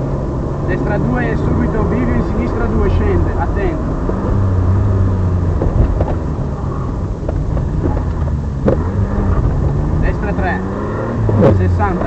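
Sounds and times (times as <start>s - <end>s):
rally car engine at speed: 0.0s - 12.0s
sharp knocks and rattles: 5.5s - 6.4s, 7.2s - 9.6s.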